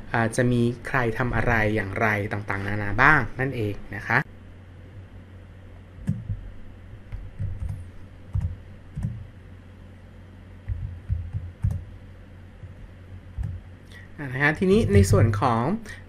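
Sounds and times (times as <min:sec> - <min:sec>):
low steady hum: 0:00.0 - 0:16.0
computer keyboard taps: 0:06.0 - 0:06.4, 0:07.1 - 0:09.2, 0:10.7 - 0:11.9, 0:13.4 - 0:13.6.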